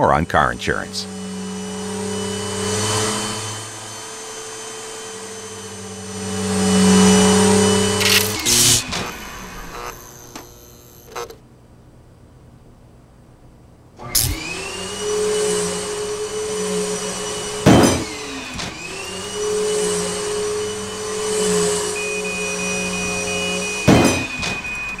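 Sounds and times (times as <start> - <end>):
steady high-pitched tone: 0.0 - 1.8, 21.5 - 25.0
vacuum cleaner running: 0.0 - 11.4, 14.0 - 25.0
loud bang: 23.9 - 24.6.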